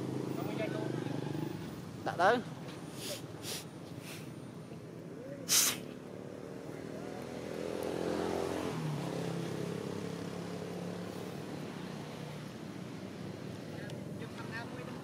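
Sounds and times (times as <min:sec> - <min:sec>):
short loud hiss: 0:05.5 - 0:05.9.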